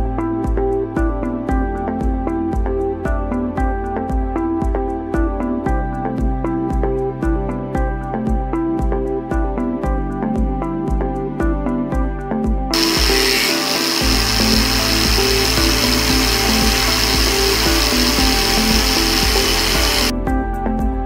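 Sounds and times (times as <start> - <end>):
music with steady beat: 0.0 - 21.0
machine tool cutting whine: 12.8 - 20.1.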